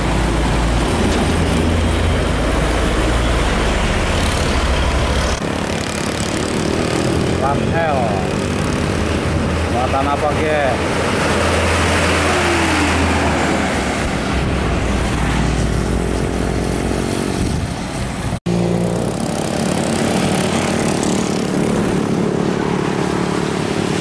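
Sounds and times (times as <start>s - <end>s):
diesel truck engine droning: 0.0s - 8.4s
dump truck approaching: 0.0s - 9.6s, 10.8s - 24.0s
road noise: 0.0s - 24.0s.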